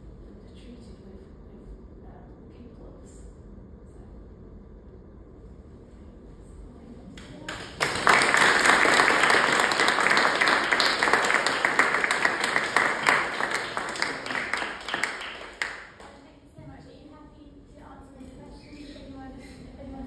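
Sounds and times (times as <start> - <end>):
audience applauding: 7.5 - 16.1.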